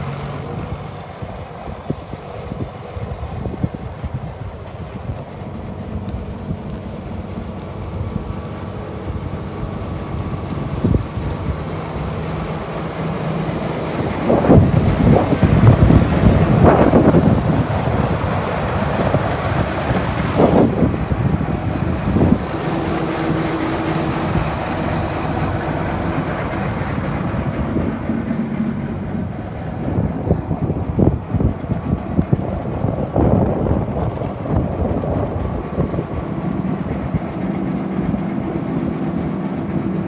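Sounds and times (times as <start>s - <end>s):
diesel engine idling: 0.0s - 40.0s
wind buffeting microphone: 0.0s - 40.0s.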